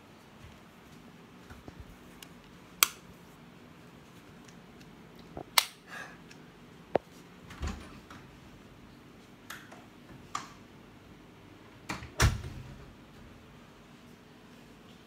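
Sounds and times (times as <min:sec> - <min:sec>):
door closing thud: 0:11.9 - 0:12.8.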